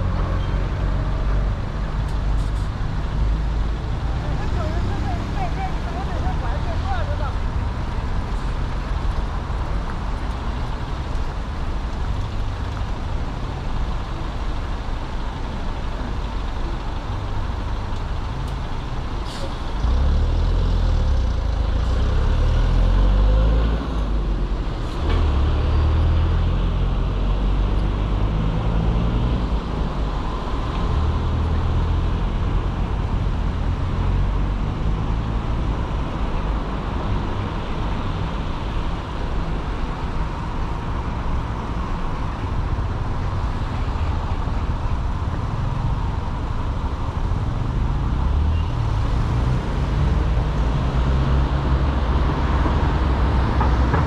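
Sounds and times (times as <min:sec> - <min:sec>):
traffic rumble: 0:00.0 - 0:54.0
truck and cars driving: 0:00.0 - 0:54.0.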